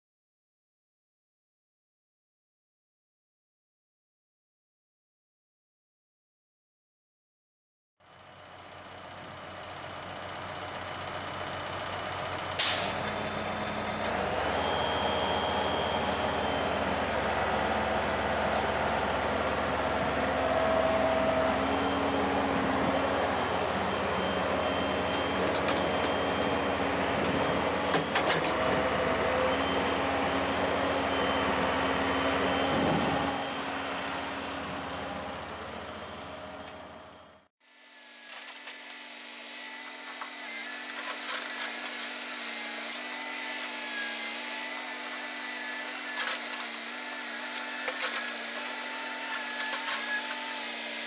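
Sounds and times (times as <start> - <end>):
excavator diesel engine under load: 8.0 - 37.5
high whine: 14.5 - 37.2.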